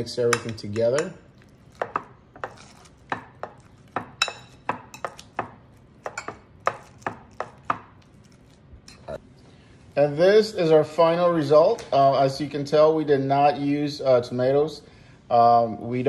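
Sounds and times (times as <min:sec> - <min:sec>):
fork tines tapping a bowl: 0:00.3 - 0:09.0.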